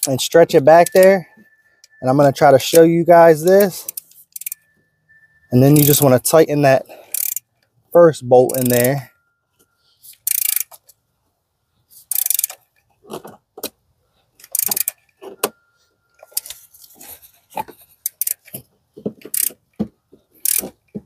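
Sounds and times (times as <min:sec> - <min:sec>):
ratchet clicking: 0:00.8 - 0:01.1, 0:03.6 - 0:04.7, 0:05.6 - 0:06.0, 0:07.1 - 0:07.5, 0:08.5 - 0:09.0, 0:10.1 - 0:10.8, 0:12.0 - 0:12.6, 0:14.4 - 0:15.1, 0:18.0 - 0:18.6, 0:19.3 - 0:19.6, 0:20.4 - 0:20.7.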